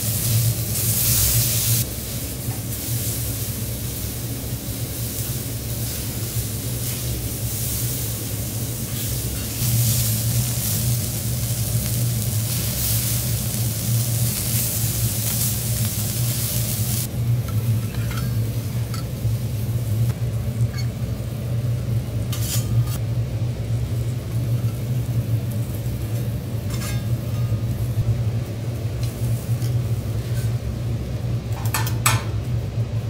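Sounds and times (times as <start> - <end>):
food sizzling on a griddle: 0.0 - 20.8, 21.7 - 23.0
steady low hum: 0.0 - 33.0
spatula scraping metal griddle: 17.8 - 18.4, 22.3 - 23.0, 26.7 - 27.5, 29.6 - 30.6.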